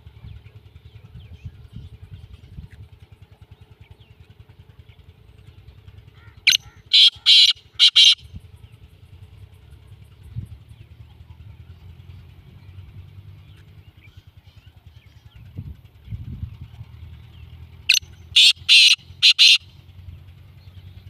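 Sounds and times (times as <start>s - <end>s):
low engine hum: 0.0s - 21.0s
francolin harsh calls: 6.2s - 8.3s, 17.9s - 19.7s.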